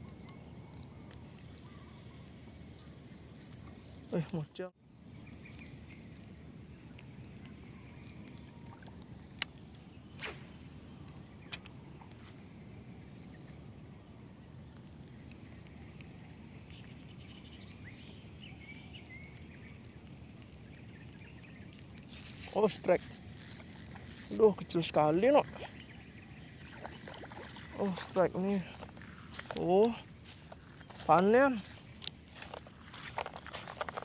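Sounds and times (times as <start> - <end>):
handling noise: 22.1 - 25.4, 27.0 - 27.7
high-pitched insect drone: 22.2 - 25.4, 27.1 - 27.7.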